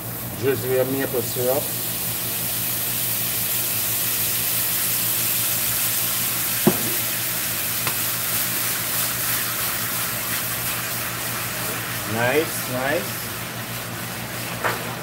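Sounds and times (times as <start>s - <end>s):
carrots sizzling in skillet: 0.0s - 15.0s
range hood fan hum: 0.0s - 15.0s.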